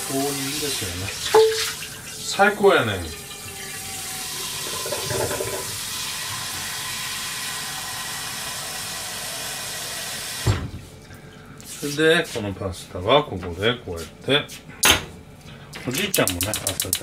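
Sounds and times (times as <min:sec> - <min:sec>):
tap water filling a pot: 0:00.0 - 0:10.4
tap shutting off knock: 0:04.6 - 0:05.7.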